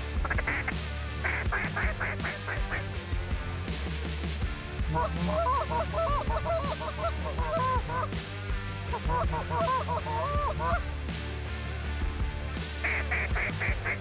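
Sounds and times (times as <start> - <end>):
geese honking: 0.1 - 3.0, 4.8 - 8.2, 8.9 - 11.0, 12.8 - 14.0.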